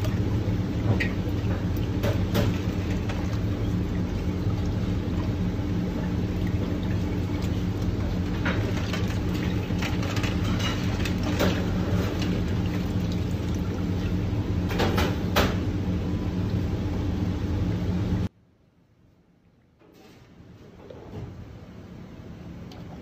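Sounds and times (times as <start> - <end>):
kitchen hum: 0.0 - 18.3.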